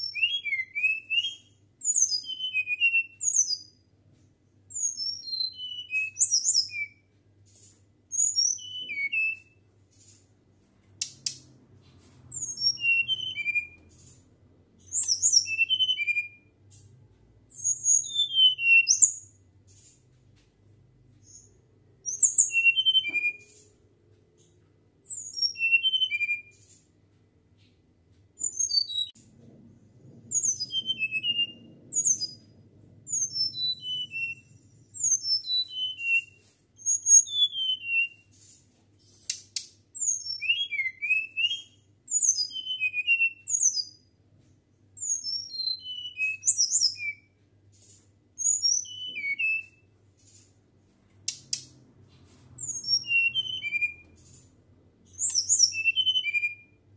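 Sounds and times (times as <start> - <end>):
bird singing high whistled notes: 0.0 - 3.8, 4.7 - 7.0, 8.1 - 9.6, 12.3 - 14.0, 14.8 - 16.5, 17.5 - 19.3, 21.2 - 23.6, 25.1 - 26.6, 28.4 - 29.1, 30.3 - 32.5, 33.1 - 38.3, 40.0 - 44.0, 45.0 - 47.4, 48.4 - 49.9, 52.6 - 54.4, 55.1 - 56.8.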